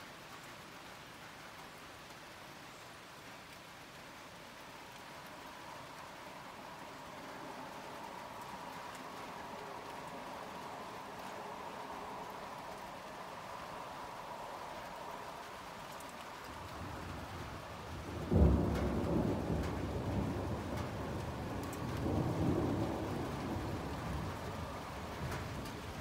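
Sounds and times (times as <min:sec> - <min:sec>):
rain falling: 0:00.0 - 0:26.0
thunder crack and rumble: 0:16.4 - 0:26.0.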